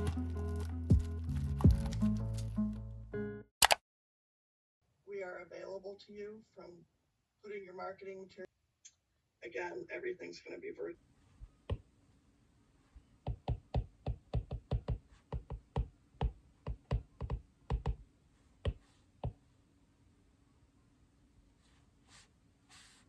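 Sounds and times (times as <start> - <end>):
stylus tapping on glass screen: 13.3 - 18.0.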